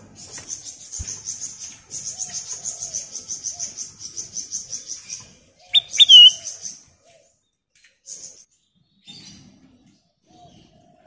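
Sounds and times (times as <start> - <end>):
soft low chirps: 5.8 - 6.4
bird whistling sharp notes: 5.8 - 6.5.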